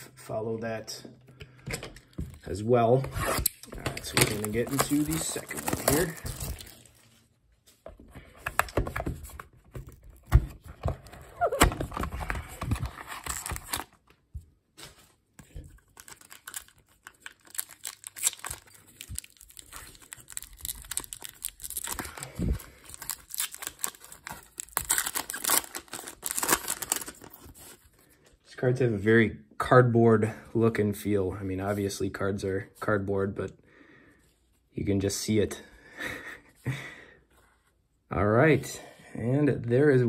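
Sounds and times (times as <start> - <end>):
plastic wrapper tearing: 3.4 - 7.0, 11.4 - 14.0, 15.8 - 27.8
plastic wrapper crinkling: 4.0 - 7.2, 15.6 - 27.8.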